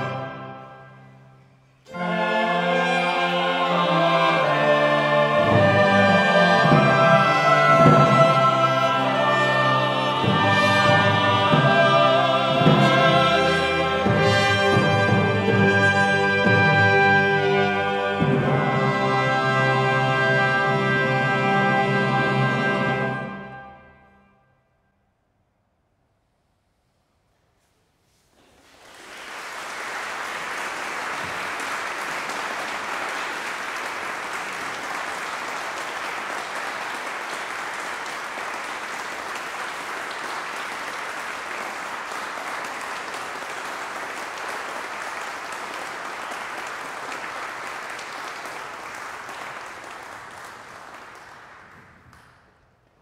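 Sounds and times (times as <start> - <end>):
audience applauding: 28.4 - 53.0.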